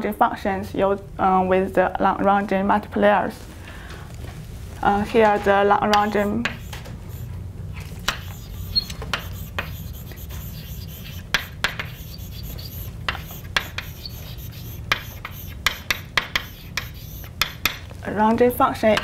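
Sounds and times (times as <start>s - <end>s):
low room hum: 0.0s - 19.0s
chalk tapping and scratching: 5.9s - 17.9s.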